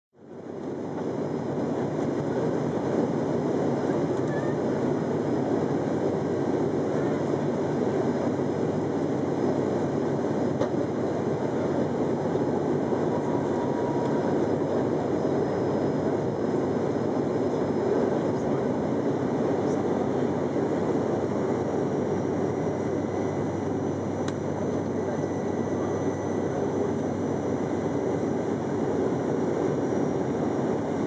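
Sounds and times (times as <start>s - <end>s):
propeller engine drone: 0.2s - 31.0s.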